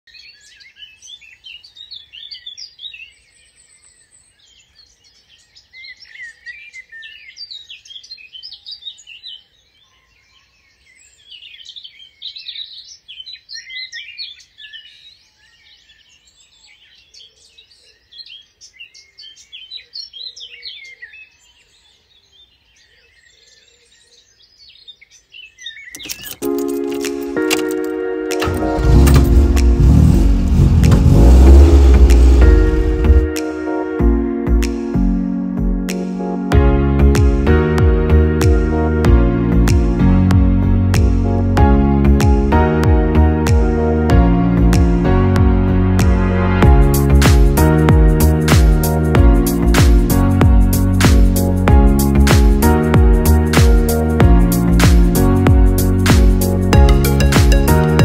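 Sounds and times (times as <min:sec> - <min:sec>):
birds chirping and trilling: 0:00.1 - 0:33.3
music: 0:26.0 - 0:58.0.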